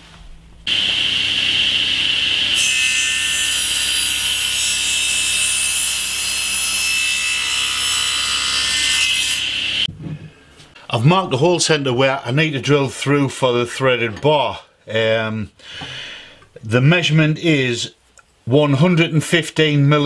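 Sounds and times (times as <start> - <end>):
saw blade cutting wood: 0.7 - 9.9
table saw whining: 0.7 - 9.9.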